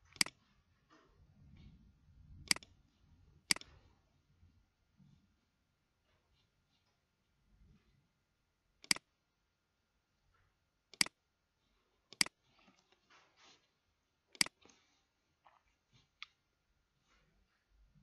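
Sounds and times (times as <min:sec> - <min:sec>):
mouse button clicking: 0:10.9 - 0:11.2, 0:14.4 - 0:14.6
soft shuffling: 0:11.7 - 0:13.9.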